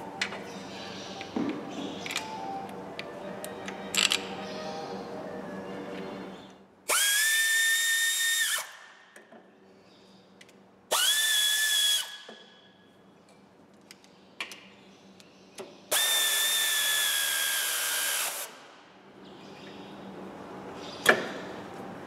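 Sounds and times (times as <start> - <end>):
power drill whining: 15.9 - 18.5.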